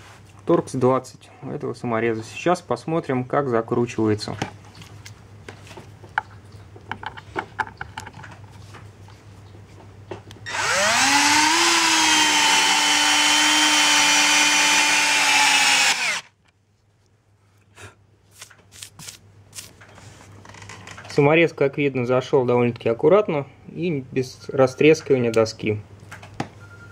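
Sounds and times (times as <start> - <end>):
drill motor driving screw: 10.5 - 16.4.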